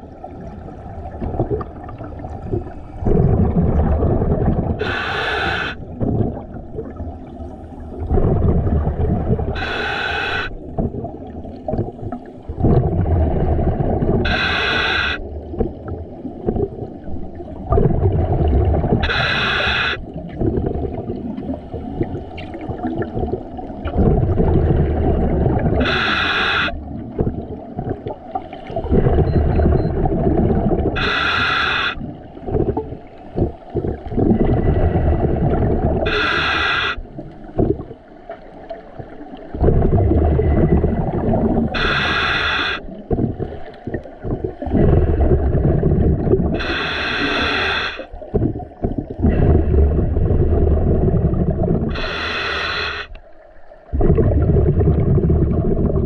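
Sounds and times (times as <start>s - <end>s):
exhaled bubbles rushing: 0.0s - 53.0s, 53.6s - 56.0s
regulator inhalation hiss: 4.8s - 5.8s, 9.6s - 10.6s, 14.3s - 15.2s, 19.0s - 20.0s, 25.8s - 26.8s, 31.0s - 32.0s, 36.1s - 37.1s, 41.8s - 42.9s, 46.6s - 48.1s, 51.9s - 53.2s.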